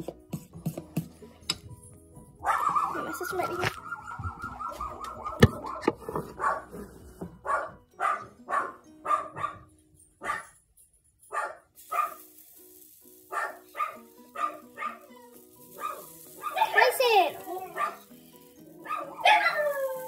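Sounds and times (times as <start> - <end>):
background music: 0.0 - 20.0
dog barking: 2.4 - 10.6, 11.3 - 12.2, 13.3 - 15.1, 15.8 - 17.0, 17.6 - 18.1, 18.8 - 20.0.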